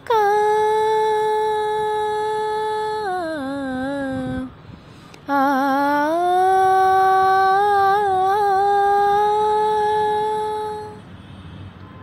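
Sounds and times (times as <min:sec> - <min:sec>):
person singing a long note: 0:00.0 - 0:04.6, 0:05.3 - 0:11.0.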